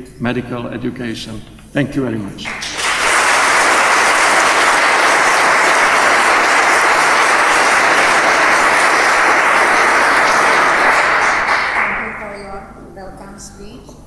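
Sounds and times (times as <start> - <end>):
audience applauding: 2.4 - 12.3.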